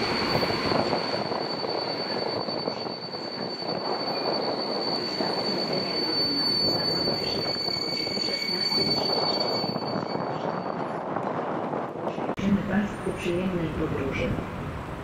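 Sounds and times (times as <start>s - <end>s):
train wheels squealing: 0.0s - 10.8s
train rumbling on rails: 0.0s - 15.0s.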